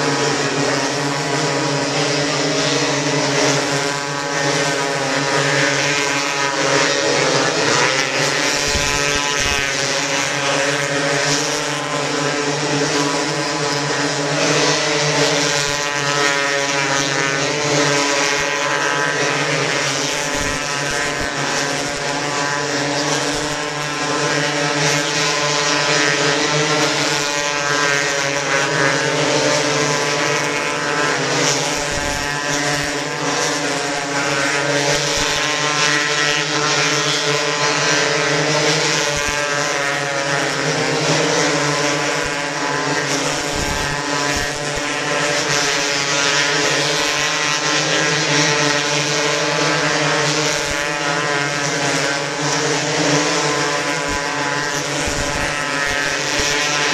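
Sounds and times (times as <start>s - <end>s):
racing car engines droning: 0.0s - 56.9s.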